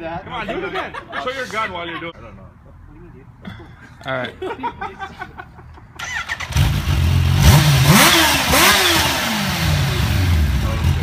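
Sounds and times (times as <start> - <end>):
motorcycle engine starting and revving: 6.0 - 11.0.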